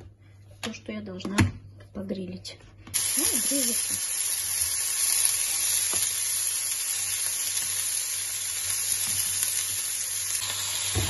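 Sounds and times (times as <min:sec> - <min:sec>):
vegetable slices sizzling on grill: 0:03.0 - 0:11.0.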